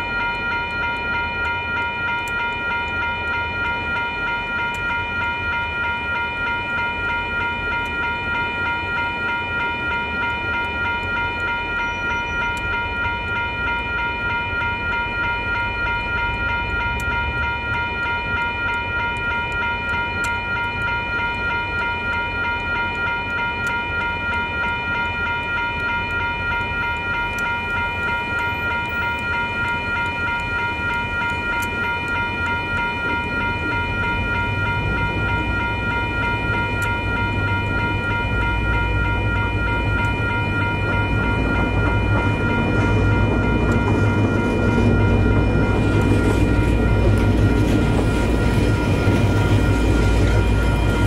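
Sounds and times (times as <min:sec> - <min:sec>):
high whine: 0:25.7 - 0:51.0
diesel locomotive engine rumble: 0:26.3 - 0:51.0.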